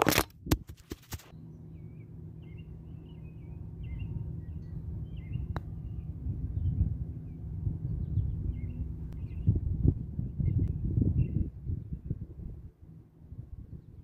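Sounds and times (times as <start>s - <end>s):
low steady rumble: 0.0s - 14.0s
small birds chirping: 1.3s - 9.6s.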